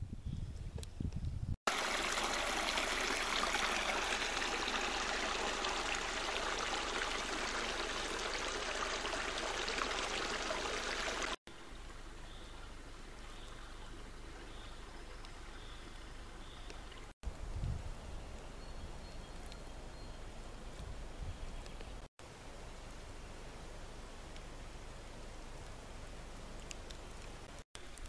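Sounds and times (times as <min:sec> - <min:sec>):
stream water trickling: 0:01.7 - 0:17.2, 0:25.6 - 0:28.0.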